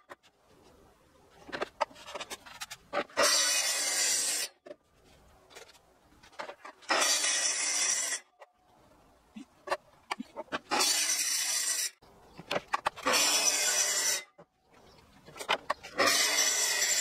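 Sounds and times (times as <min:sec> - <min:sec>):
circular saw cutting wood: 0:03.2 - 0:04.5, 0:06.9 - 0:08.3, 0:10.7 - 0:12.0, 0:13.0 - 0:14.3, 0:16.0 - 0:17.0.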